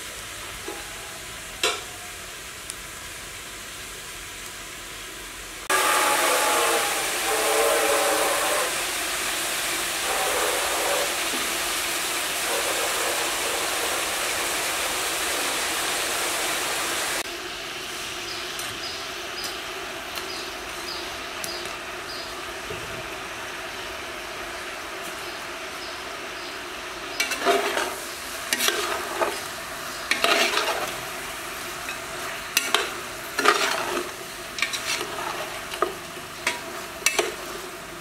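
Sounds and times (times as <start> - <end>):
meat sizzling in hot oil: 0.0 - 38.0
metal ladle stirring in pot: 27.2 - 29.5, 30.1 - 31.0, 31.9 - 37.6.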